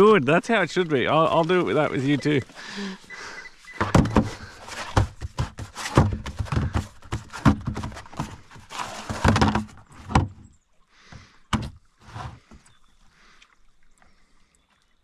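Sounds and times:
plastic mat clattering and rustling: 3.8s - 10.4s.

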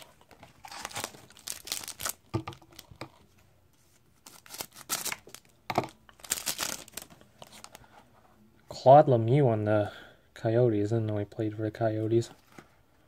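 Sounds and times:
card wrapper ripping and crinkling: 0.3s - 3.0s, 4.2s - 5.5s, 6.1s - 7.8s.

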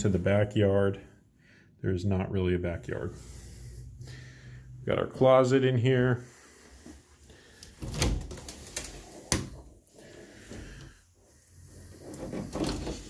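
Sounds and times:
bifold closet doors clacking: 7.7s - 9.8s, 12.2s - 13.0s.

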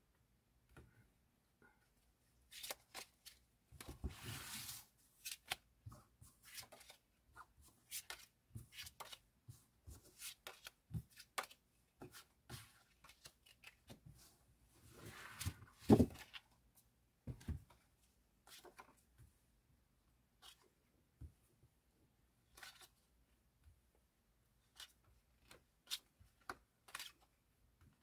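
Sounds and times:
cards sliding on cloth: 4.1s - 5.0s.

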